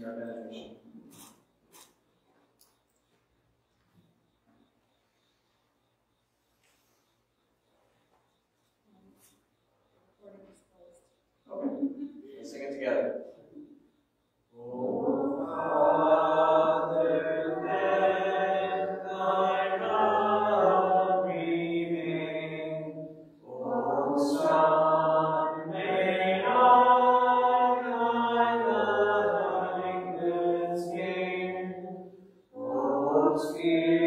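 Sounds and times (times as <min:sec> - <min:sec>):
congregation singing a hymn: 0:14.5 - 0:34.0.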